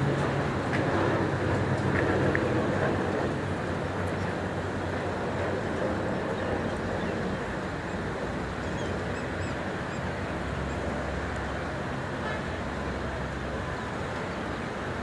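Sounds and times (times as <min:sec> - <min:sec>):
distant turboprop engines droning: 0:00.0 - 0:15.0.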